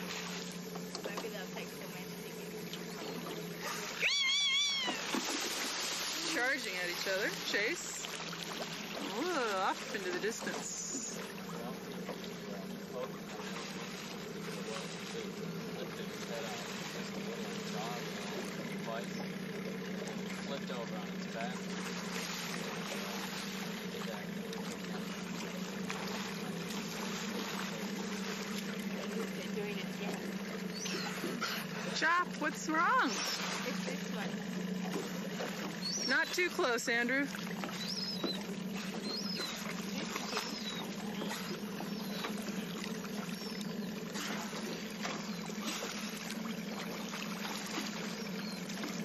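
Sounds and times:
boat motor idling: 0.0s - 49.0s
water: 0.0s - 49.0s
wind: 0.0s - 49.0s
faint high chirps: 37.7s - 42.3s.

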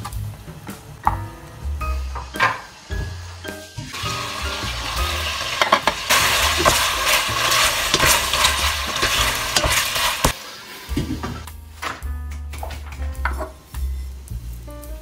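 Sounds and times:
meat sizzling in a pot: 1.9s - 11.5s.

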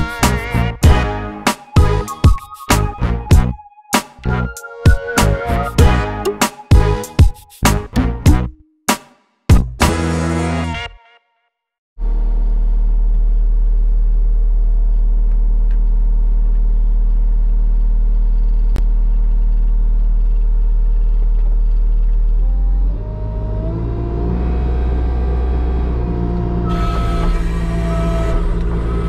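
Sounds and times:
diesel engine running: 12.0s - 29.0s.

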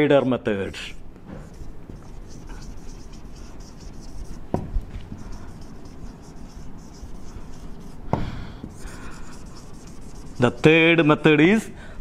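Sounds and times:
marker writing on whiteboard: 0.0s - 10.9s
sharp knocks: 4.5s - 4.8s.

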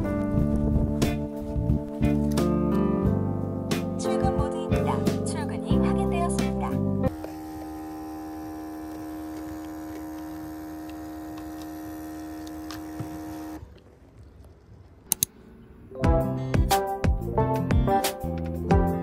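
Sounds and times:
music: 0.0s - 7.1s, 15.9s - 19.0s
espresso machine pump humming: 7.1s - 13.8s.

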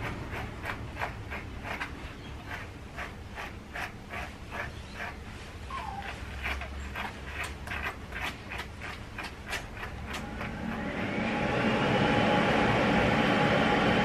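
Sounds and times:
brush raking through fur: 0.0s - 11.0s.

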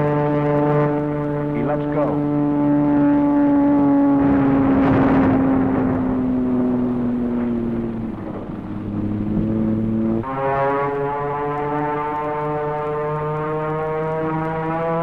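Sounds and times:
propeller plane engine droning: 0.0s - 15.0s
bomb blast: 4.1s - 10.4s.

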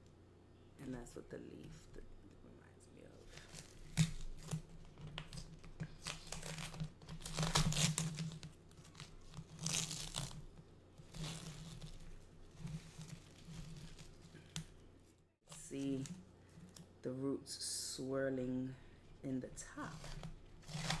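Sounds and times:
plastic packaging crinkling and tearing: 3.2s - 14.7s, 19.9s - 21.0s.

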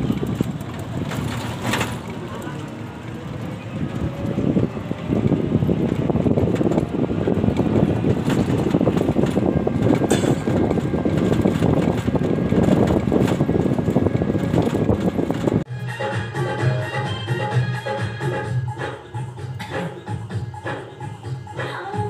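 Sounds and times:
vehicle engine and road rumble: 0.0s - 15.9s.

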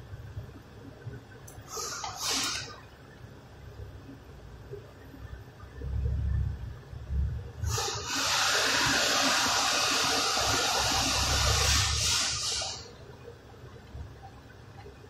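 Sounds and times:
spraying hiss: 1.7s - 2.7s, 7.6s - 12.9s.

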